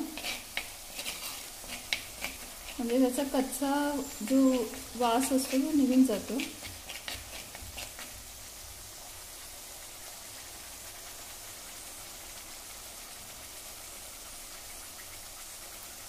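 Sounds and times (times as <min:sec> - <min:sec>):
metal spoon scraping clay pot: 0:00.0 - 0:08.1
paste sizzling in hot oil: 0:00.0 - 0:16.0.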